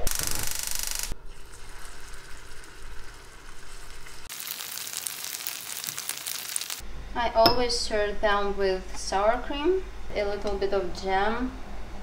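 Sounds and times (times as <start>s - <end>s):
gas burner hissing: 0.0s - 6.8s
hot oil sizzling and crackling: 0.0s - 6.8s.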